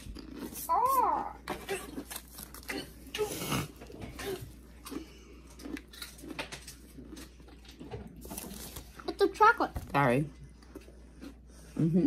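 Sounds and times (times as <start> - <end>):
chewing potato chips: 0.0 - 9.5, 10.3 - 12.0
snack bag crinkling: 1.5 - 9.4.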